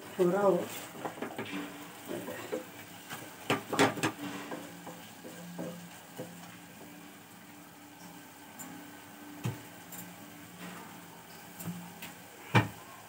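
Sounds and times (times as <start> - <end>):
wooden spatula scraping a pot: 0.2 - 6.2.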